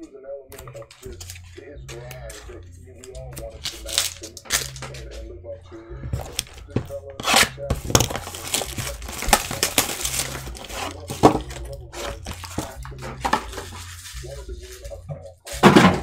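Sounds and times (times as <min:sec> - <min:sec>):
plastic wrap crinkling: 0:03.4 - 0:05.1, 0:06.2 - 0:15.7.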